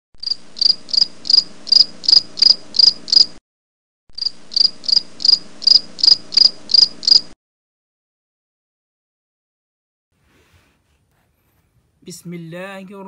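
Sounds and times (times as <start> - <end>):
high chirps: 4.2 - 7.4.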